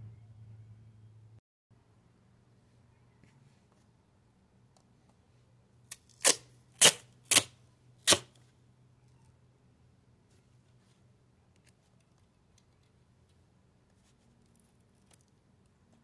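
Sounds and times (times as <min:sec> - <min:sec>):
duct tape ripping off roll: 0:05.9 - 0:08.4.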